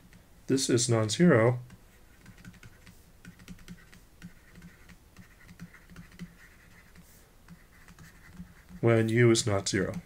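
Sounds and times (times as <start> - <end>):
stylus writing on tablet: 1.6 - 10.0.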